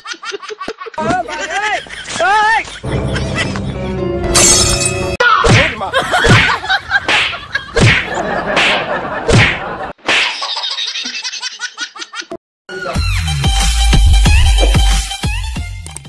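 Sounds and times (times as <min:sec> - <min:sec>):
slap and punch sound effects: 0:05.4 - 0:10.4.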